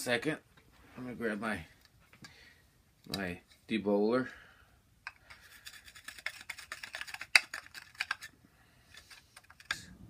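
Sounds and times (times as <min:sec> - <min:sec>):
small clicks and scrapes: 0:05.1 - 0:10.0.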